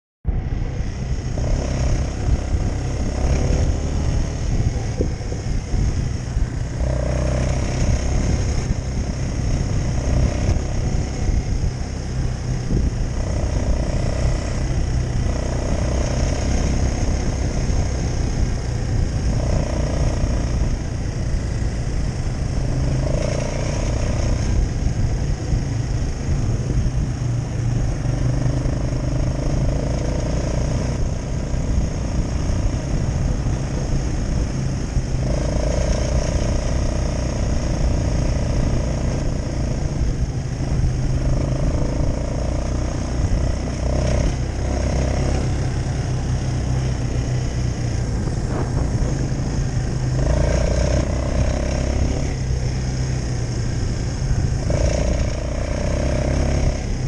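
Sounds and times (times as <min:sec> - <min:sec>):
quad bike engine running: 0:00.3 - 0:57.0.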